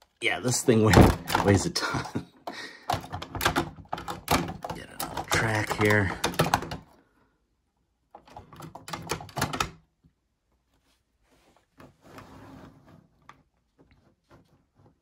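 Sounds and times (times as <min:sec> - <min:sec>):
soft rustle: 0:10.5 - 0:15.0.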